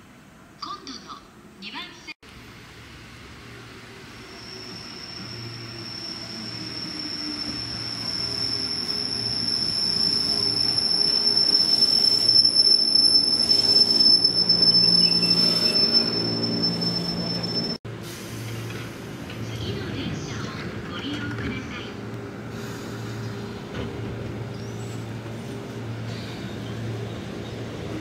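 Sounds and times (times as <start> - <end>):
train brakes squealing: 3.9 - 19.0, 24.5 - 25.1.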